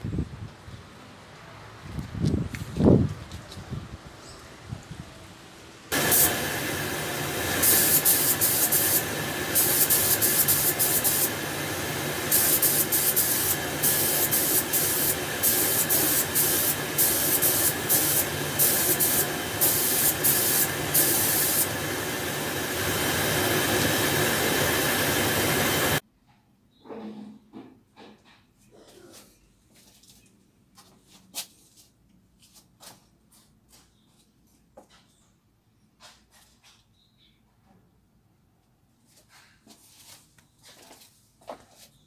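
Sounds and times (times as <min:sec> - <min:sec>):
spray gun air hiss: 0:05.9 - 0:26.0.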